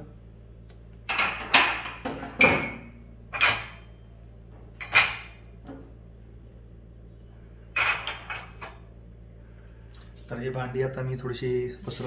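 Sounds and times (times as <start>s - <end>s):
cups clattering in dishwasher rack: 1.1s - 3.9s, 4.8s - 5.5s, 7.7s - 8.8s.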